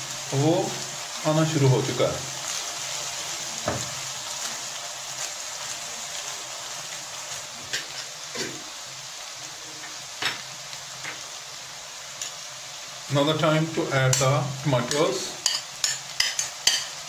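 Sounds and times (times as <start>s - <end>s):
onions sizzling in hot oil: 0.0s - 17.0s
spatula knocking on pan: 3.6s - 3.9s.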